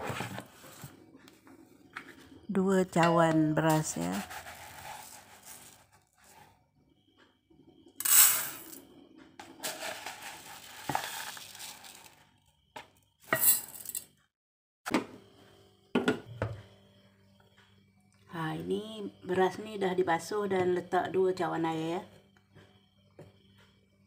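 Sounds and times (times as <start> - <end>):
rice grains poured into pot: 4.0 - 6.4, 8.0 - 8.8, 9.4 - 12.2.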